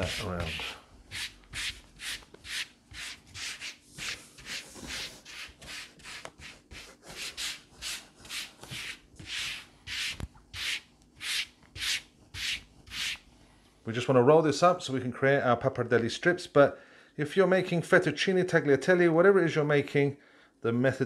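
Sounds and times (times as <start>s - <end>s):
palms rubbing flour on dough: 0.0s - 13.6s.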